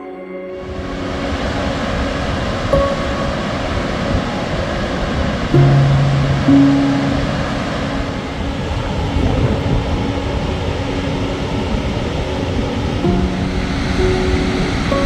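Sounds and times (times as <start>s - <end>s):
music with slow held notes: 0.0s - 15.0s
steady rushing noise: 0.6s - 15.0s.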